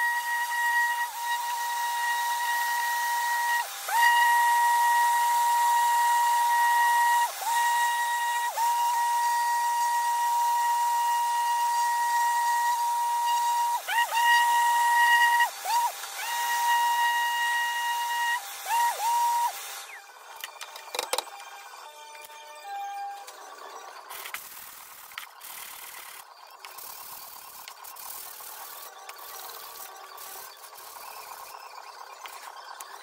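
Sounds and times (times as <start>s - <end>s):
sander motor whine: 0.0s - 23.4s.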